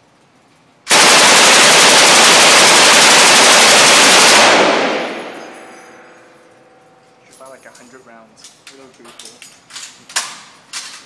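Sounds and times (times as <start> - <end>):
machine gun automatic burst: 0.9 - 5.6.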